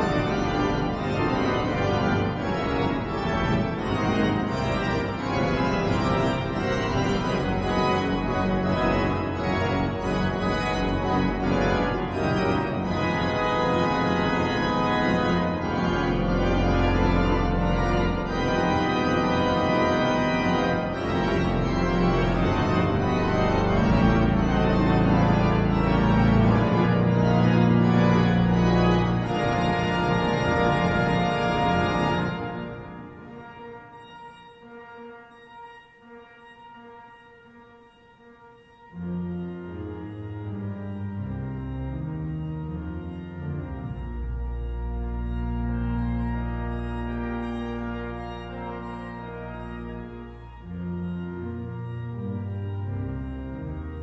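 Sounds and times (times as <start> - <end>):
deep organ pedal notes: 0.0 - 54.0
pipe organ playing chords: 0.0 - 54.0.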